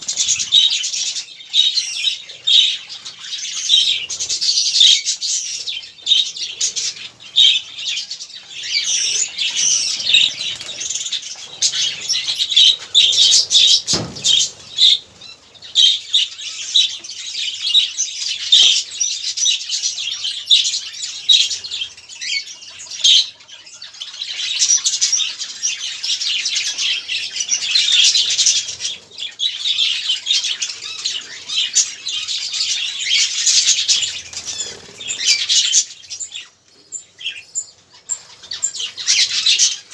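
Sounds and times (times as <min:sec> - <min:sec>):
budgerigars chattering: 0:00.0 - 0:39.9
wing flutters: 0:12.9 - 0:15.3.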